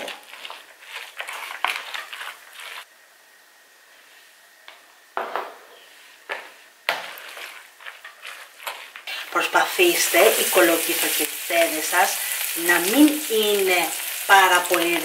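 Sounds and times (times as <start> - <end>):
spoon scraping plastic bowl: 0.0 - 2.9.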